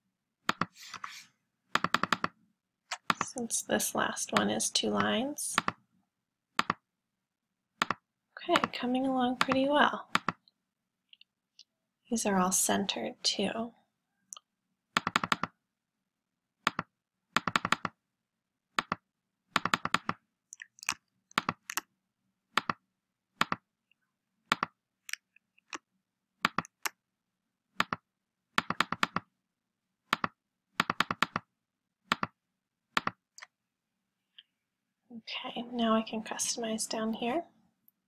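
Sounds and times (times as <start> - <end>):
keyboard typing: 0.4 - 1.0, 1.7 - 3.4, 4.3 - 5.8, 6.6 - 6.8, 7.8 - 10.5, 14.9 - 15.6, 16.6 - 18.0, 18.8 - 21.9, 22.5 - 22.8, 23.4 - 23.7, 24.5 - 25.8, 26.4 - 27.0, 27.8 - 28.0, 28.6 - 29.3, 30.1 - 31.5, 32.1 - 33.4
mouse clicking: 6.6 - 6.8, 7.8 - 8.0, 19.6 - 21.9, 26.4 - 27.0, 28.6 - 29.3, 30.1 - 31.4, 33.0 - 33.5.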